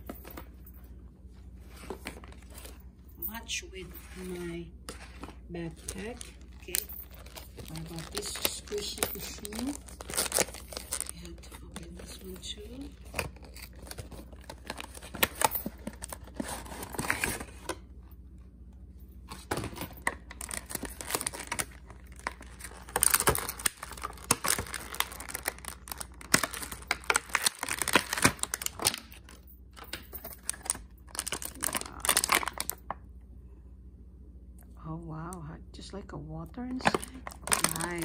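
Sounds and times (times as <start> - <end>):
plastic packaging crinkling: 3.9 - 17.7, 19.3 - 33.0, 36.8 - 38.0.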